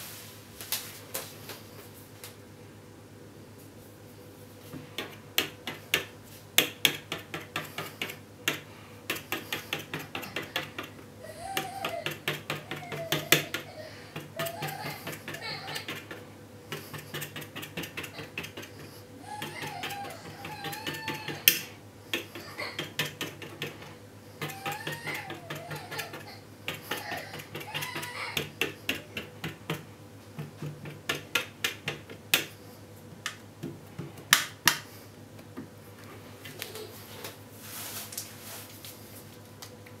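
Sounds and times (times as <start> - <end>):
fork clicking on metal tray: 11.6 - 29.8.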